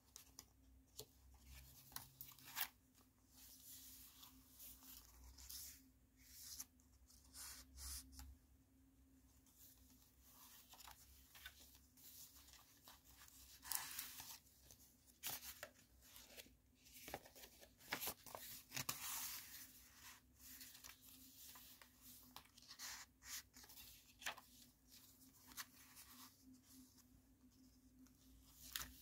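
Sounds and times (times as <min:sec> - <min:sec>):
paper pages rustling: 0:10.2 - 0:27.1.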